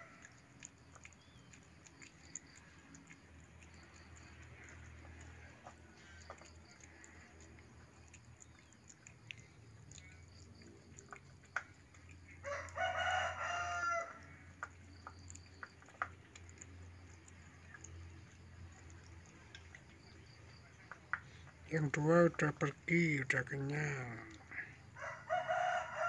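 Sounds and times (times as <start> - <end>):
rooster crowing: 12.4 - 14.4, 24.9 - 26.0.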